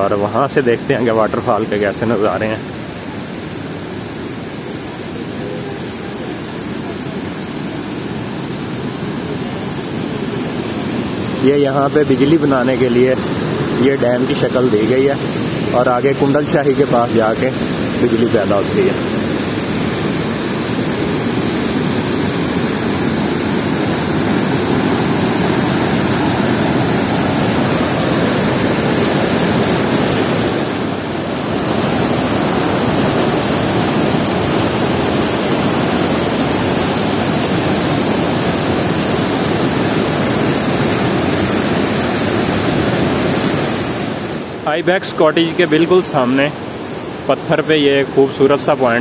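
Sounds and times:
river rushing over rocks: 0.1 - 49.0.

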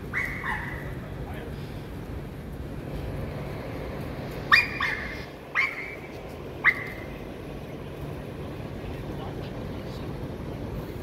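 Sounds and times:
puppy yipping: 0.1 - 0.9, 4.5 - 6.0, 6.6 - 7.0.

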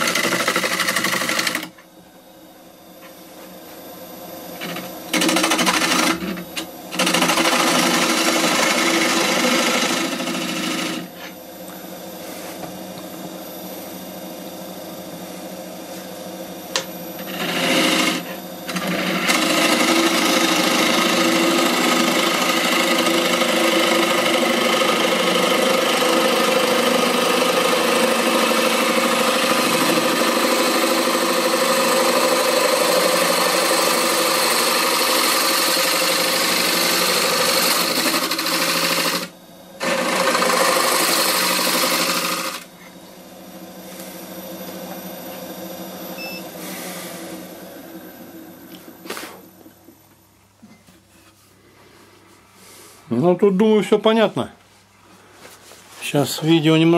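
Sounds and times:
lathe whirring: 0.0 - 1.8, 3.0 - 50.1
gouge tearing wood on lathe: 7.0 - 11.1, 17.2 - 42.7.

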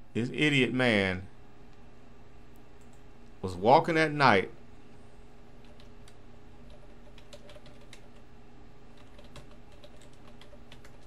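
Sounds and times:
faint low hum: 0.0 - 11.0
keyboard typing: 5.6 - 8.3, 8.9 - 11.0.

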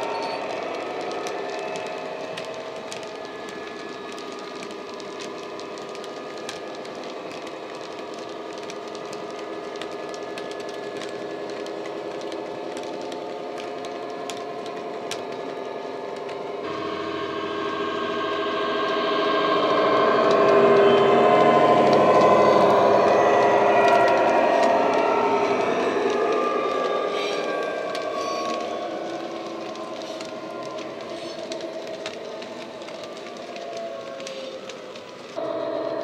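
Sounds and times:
diesel engine drone from speaker: 16.7 - 25.6.

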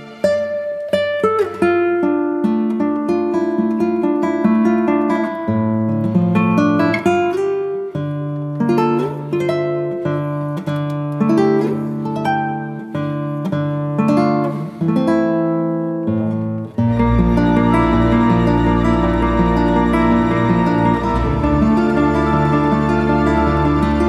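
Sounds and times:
acoustic guitar music: 0.0 - 24.0
held bass notes: 16.9 - 24.0.

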